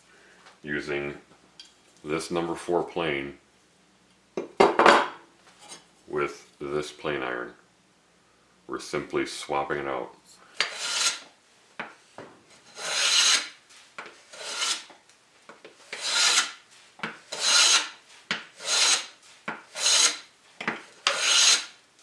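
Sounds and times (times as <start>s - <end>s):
hand plane shaving board: 10.6s - 11.2s, 12.7s - 13.5s, 14.2s - 14.9s, 15.8s - 16.6s, 17.3s - 18.0s, 18.6s - 19.1s, 19.7s - 20.2s, 21.0s - 21.8s.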